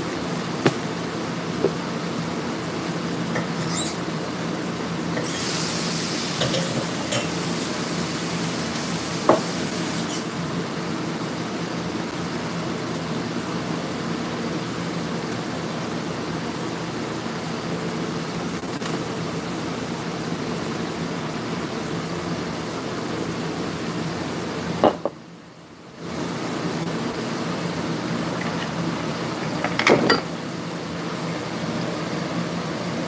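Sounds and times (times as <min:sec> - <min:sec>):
hiss: 0:05.2 - 0:10.3.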